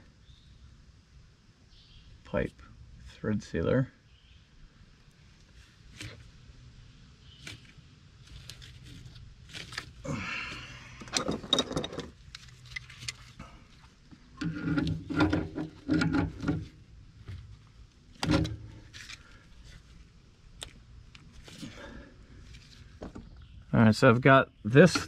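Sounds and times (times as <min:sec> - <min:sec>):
handling brass pipe fittings: 0:11.0 - 0:16.8.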